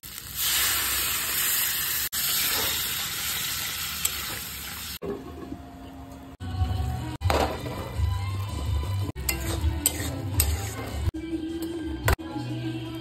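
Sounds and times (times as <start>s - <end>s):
sizzling in hot oil: 0.0s - 5.0s, 8.4s - 11.1s.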